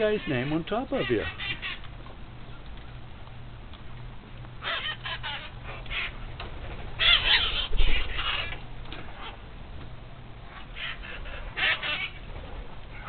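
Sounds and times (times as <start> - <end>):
parrots squawking: 0.0 - 1.9, 4.6 - 6.2, 7.0 - 8.6, 10.5 - 12.3.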